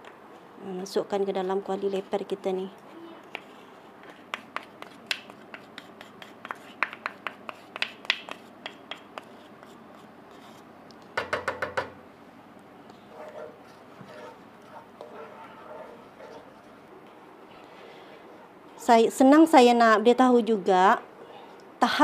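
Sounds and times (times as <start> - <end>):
utensil scraping and tapping bowl: 3.3 - 11.9, 12.9 - 16.7.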